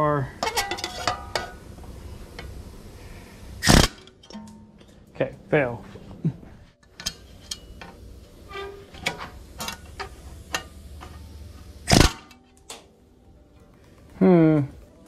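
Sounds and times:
pneumatic rivet gun hammering: 3.6s - 4.4s, 11.9s - 12.4s.

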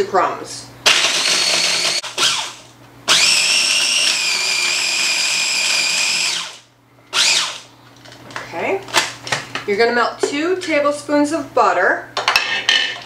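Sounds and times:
food processor motor pulsing: 0.9s - 7.7s.

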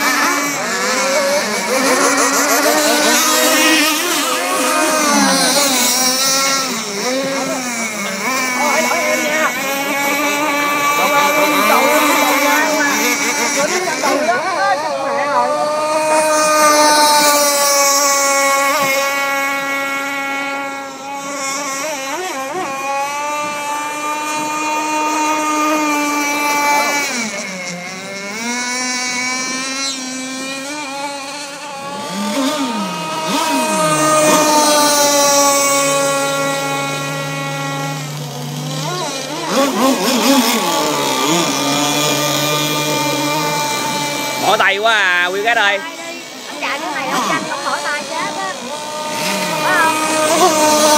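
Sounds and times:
wavering sound: 0.0s - 21.3s
model boat engine buzzing: 0.0s - 50.9s.

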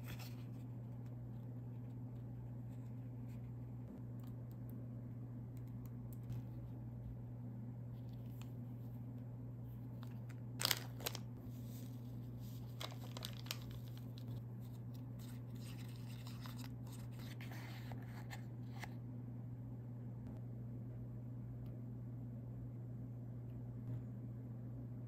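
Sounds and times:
low steady hum: 0.0s - 25.0s
foil packet tearing: 10.6s - 11.3s, 12.6s - 14.4s.

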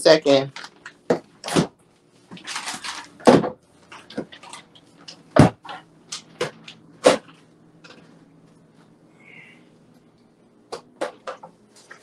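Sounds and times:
low steady hum: 0.0s - 12.0s
kitchen doors and items knocking: 3.2s - 4.4s, 5.3s - 7.3s.

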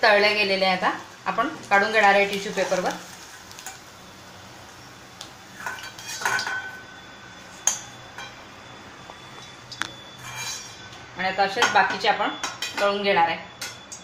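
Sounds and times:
metal spoon scraping and clinking: 5.6s - 6.7s, 10.2s - 10.9s.

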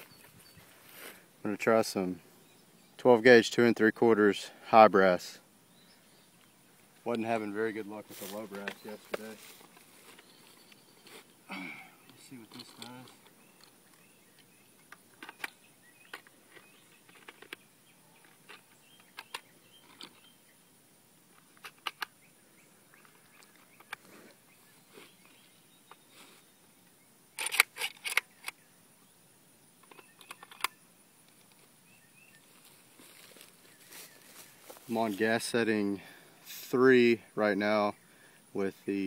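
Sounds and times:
shells clicking into magazine: 27.4s - 28.6s.

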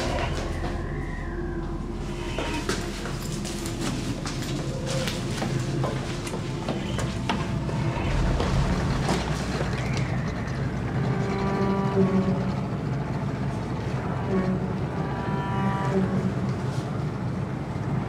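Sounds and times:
outboard motor running: 4.2s - 15.1s.

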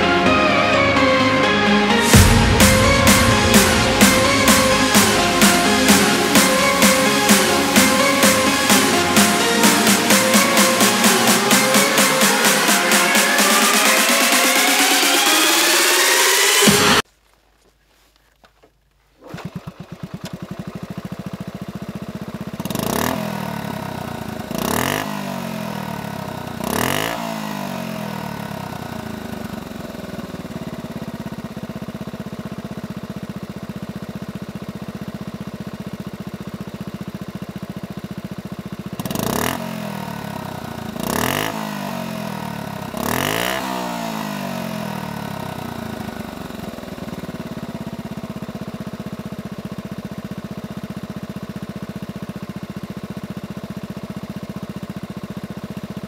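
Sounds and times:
engine revving: 0.0s - 17.0s, 22.5s - 30.5s, 39.0s - 48.0s
motorcycle engine idling: 19.2s - 56.0s.

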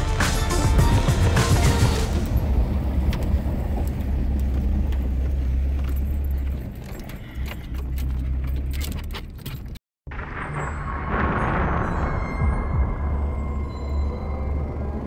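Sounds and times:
truck engine drone: 0.0s - 8.8s, 10.1s - 15.0s
loose rattling and jangling: 4.5s - 9.8s.

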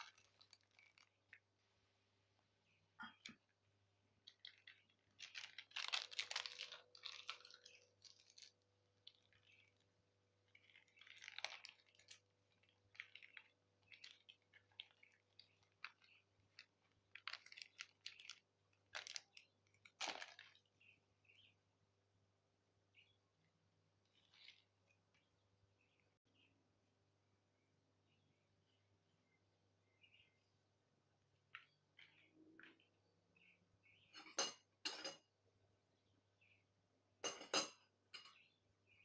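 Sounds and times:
powder rustling and scraping: 4.3s - 20.6s.

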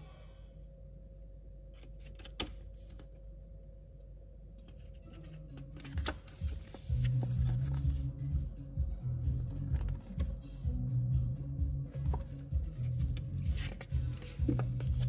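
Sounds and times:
paper pages rustling: 1.8s - 3.2s, 4.6s - 8.0s, 9.5s - 10.3s, 11.9s - 15.0s
background music: 4.7s - 15.0s.

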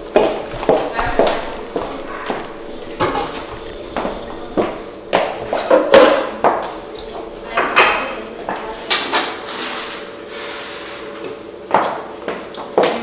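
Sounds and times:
dishes and cutlery clattering: 0.9s - 10.0s.

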